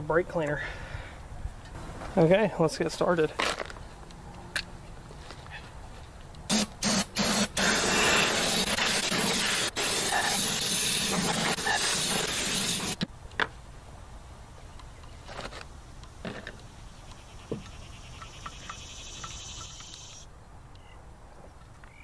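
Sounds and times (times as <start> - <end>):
aerosol spray hissing: 6.5 - 13.0.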